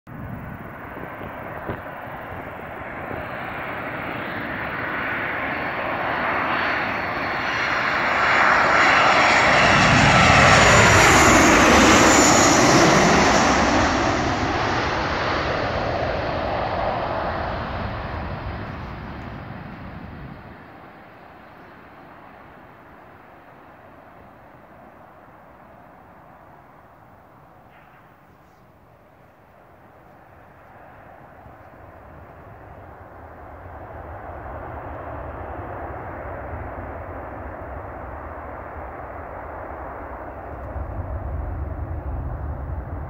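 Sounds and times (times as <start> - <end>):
jet airliner passing overhead: 0.1 - 43.0.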